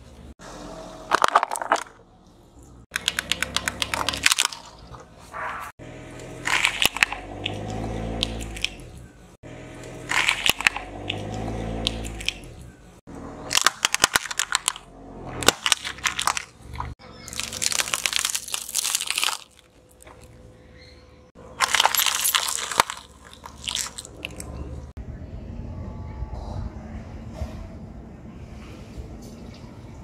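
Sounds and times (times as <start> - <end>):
tyre crushing objects: 15.4 - 20.3, 21.6 - 24.5.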